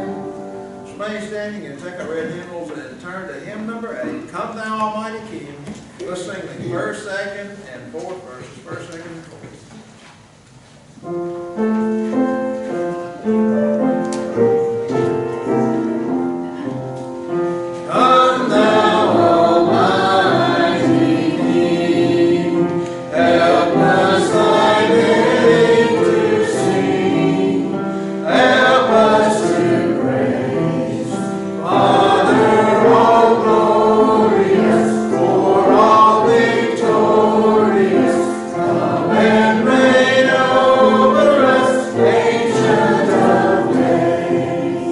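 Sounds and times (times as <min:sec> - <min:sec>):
choir and congregation singing hymn: 0:00.0 - 0:02.5, 0:13.8 - 0:44.9
held accompaniment notes: 0:00.0 - 0:05.5, 0:11.0 - 0:44.9.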